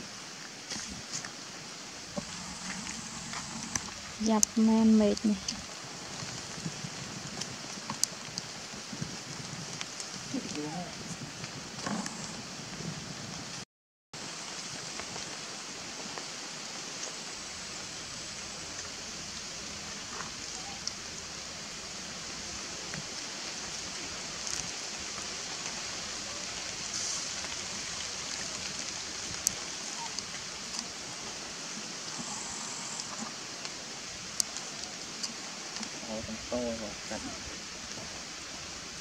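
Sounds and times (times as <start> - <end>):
outdoor background hiss: 0.0 - 13.6, 14.2 - 39.0
faint ticks: 7.3 - 8.5, 32.1 - 36.0.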